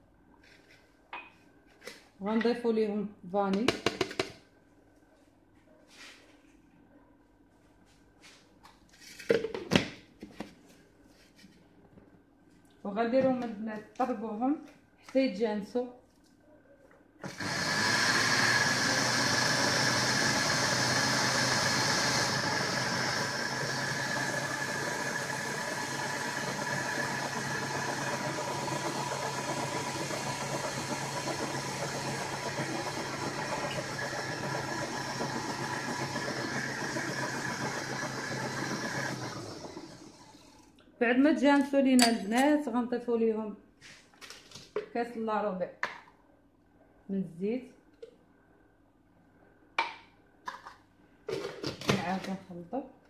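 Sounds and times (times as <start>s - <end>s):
blender motor running: 17.2s - 40.7s.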